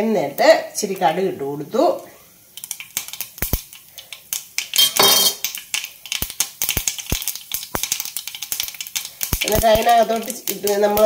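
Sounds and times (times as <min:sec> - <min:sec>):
mustard seeds popping in hot oil: 0:00.0 - 0:11.0
oil sizzling: 0:00.0 - 0:11.0.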